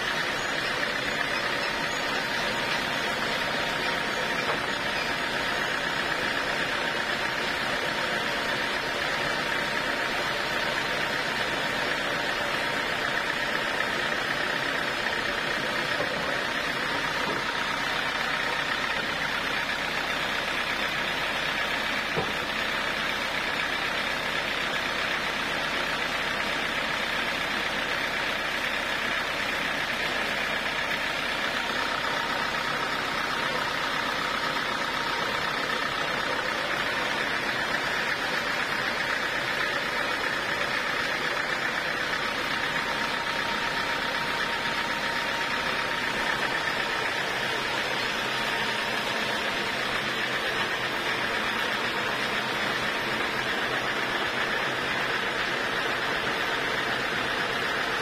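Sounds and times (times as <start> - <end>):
band saw whirring: 0.0 - 20.6.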